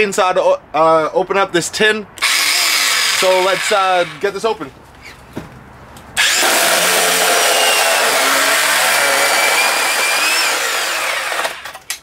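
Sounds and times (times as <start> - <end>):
electric chainsaw cutting metal: 2.2 - 4.3, 6.2 - 12.0.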